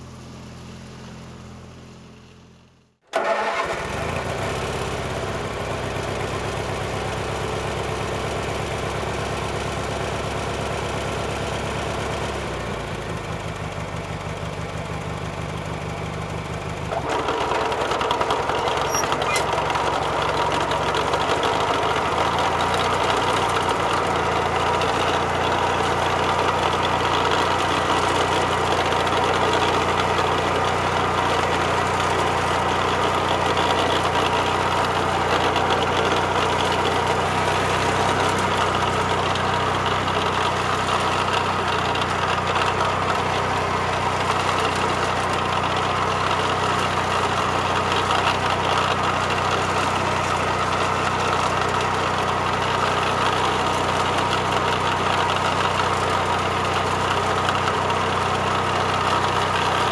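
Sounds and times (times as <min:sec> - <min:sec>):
lawnmower engine running: 0:00.0 - 0:59.9.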